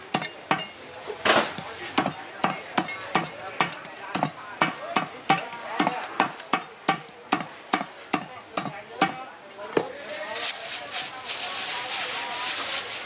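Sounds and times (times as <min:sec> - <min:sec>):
cleaver chopping on wooden block: 0:01.3 - 0:09.2.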